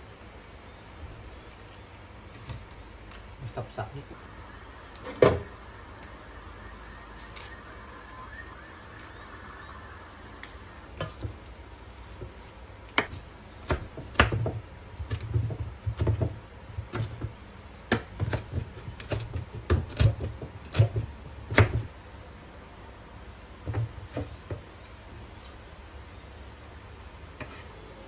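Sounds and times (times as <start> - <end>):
knife chopping on wooden board: 12.2 - 21.9.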